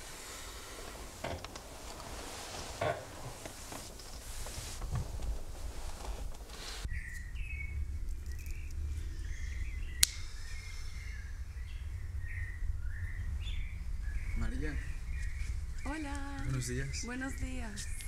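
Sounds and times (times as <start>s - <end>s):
bedsheets rustling: 0.0s - 6.9s
birds chirping: 0.0s - 18.0s
low outdoor rumble: 0.0s - 18.0s.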